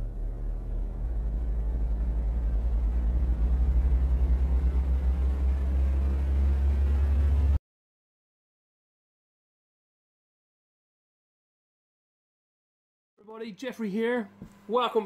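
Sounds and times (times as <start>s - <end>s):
deep low rumble: 0.0s - 7.6s.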